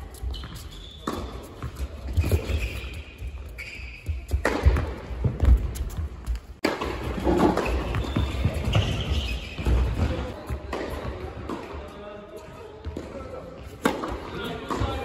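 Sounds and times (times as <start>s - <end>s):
tennis balls bouncing on court: 0.3s - 3.4s, 4.0s - 11.8s, 12.8s - 15.0s
tennis balls struck with rackets: 4.3s - 5.7s, 9.6s - 11.8s, 13.8s - 15.0s.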